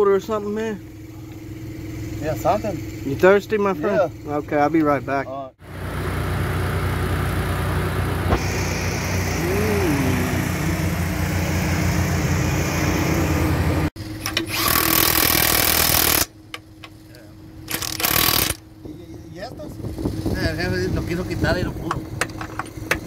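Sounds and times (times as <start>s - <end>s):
heavy machine engine running: 5.6s - 16.5s
impact wrench rattling on bolt: 17.7s - 18.6s.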